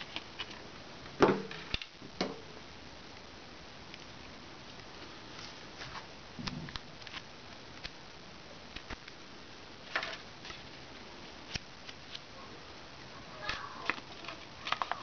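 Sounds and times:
paper rustling and crinkling: 0:13.4 - 0:15.0.

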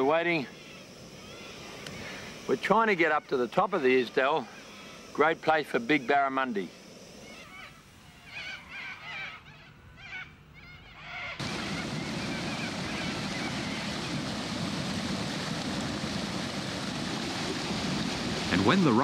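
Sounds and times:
faint calls: 0:00.0 - 0:14.9
water rushing through rocky channel: 0:11.8 - 0:19.0.

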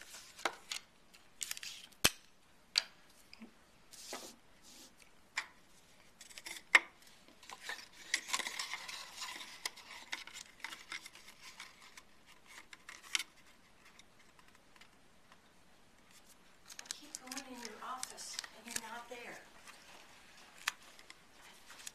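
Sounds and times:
paper rustling: 0:07.4 - 0:15.0, 0:16.0 - 0:21.9.

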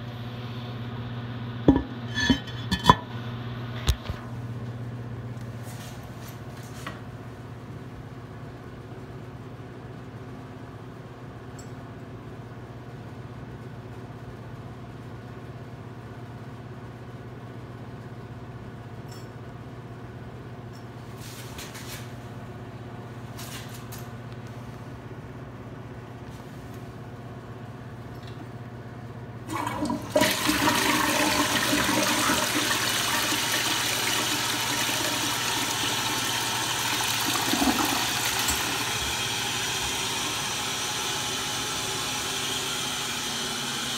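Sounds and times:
steady low hum: 0:00.0 - 0:13.7
toilet flushing: 0:29.5 - 0:43.9.

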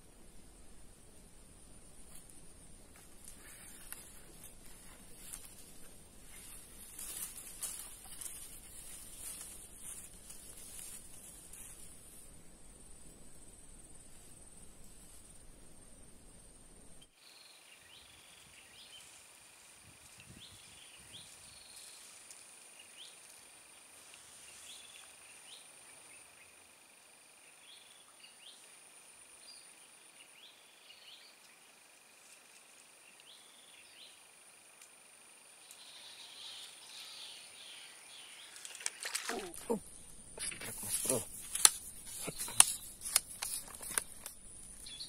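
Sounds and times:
insect rising chirp: 0:00.4 - 0:45.0
high-pitched insect drone: 0:17.2 - 0:43.0.

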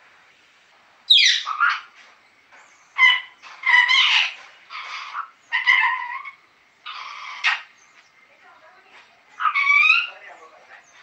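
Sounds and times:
parrot squawking and chattering: 0:01.1 - 0:01.9, 0:03.0 - 0:07.7, 0:09.4 - 0:10.2.

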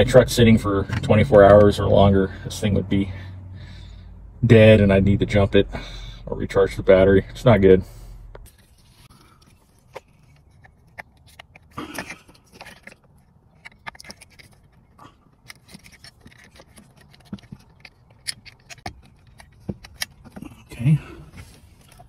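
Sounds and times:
cables rustling and clicking: 0:08.4 - 0:22.0.

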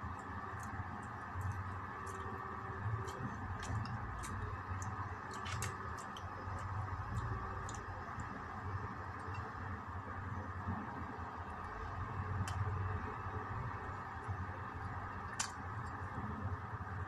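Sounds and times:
pastry crackling while chewed: 0:00.0 - 0:09.8, 0:11.5 - 0:16.5
steady background hum: 0:00.0 - 0:17.0.

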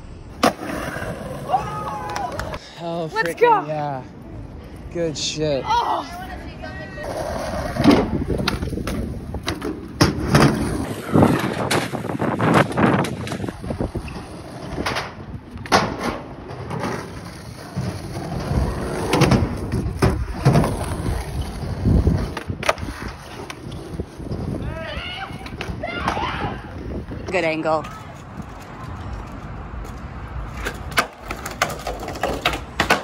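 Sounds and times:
skateboard wheels rolling on concrete: 0:00.0 - 0:33.0
skateboard clacking and landing: 0:30.6 - 0:33.0.

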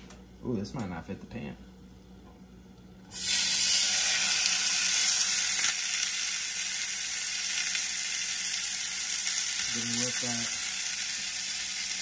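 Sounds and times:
beef sizzling in a hot pan: 0:03.1 - 0:12.0.

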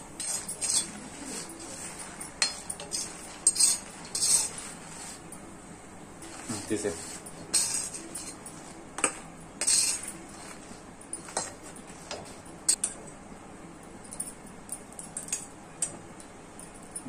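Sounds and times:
steel spoon scraping iron pan: 0:00.0 - 0:05.4, 0:06.2 - 0:12.8.

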